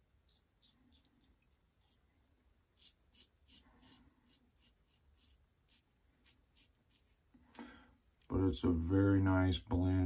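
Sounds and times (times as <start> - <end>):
razor scraping stubble: 0.2 - 2.1, 2.7 - 7.3.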